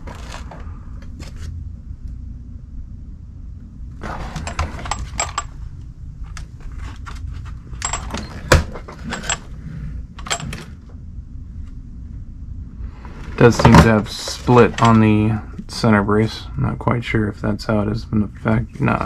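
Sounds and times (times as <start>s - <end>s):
plastic and metal parts clicking and rattling: 4.1s - 5.5s.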